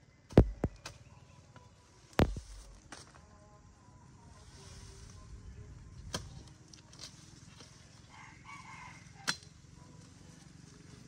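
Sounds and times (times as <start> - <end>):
machete cutting grass stalks: 0.3 - 1.0, 2.2 - 3.1
rooster crowing: 8.1 - 9.4.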